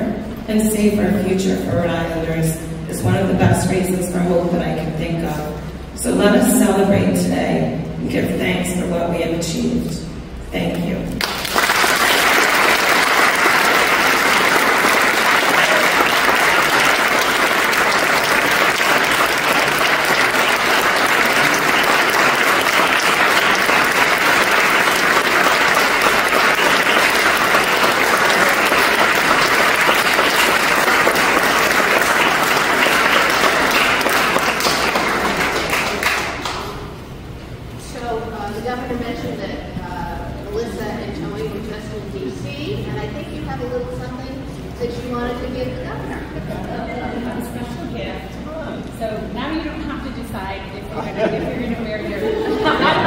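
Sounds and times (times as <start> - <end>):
crowd applauding: 11.2 - 37.0.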